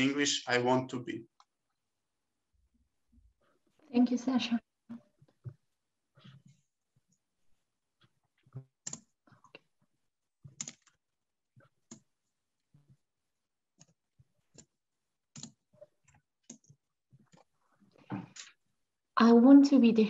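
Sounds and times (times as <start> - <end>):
computer mouse and keyboard clicking: 8.8 - 9.2, 10.5 - 11.0, 13.8 - 14.7, 15.3 - 17.5.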